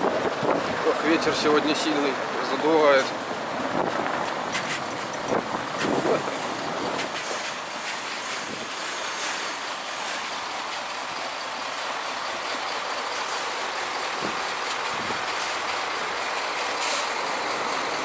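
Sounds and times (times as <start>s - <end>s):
wind on microphone: 0.0s - 0.9s, 3.5s - 7.4s
diesel truck engine running: 0.0s - 18.0s.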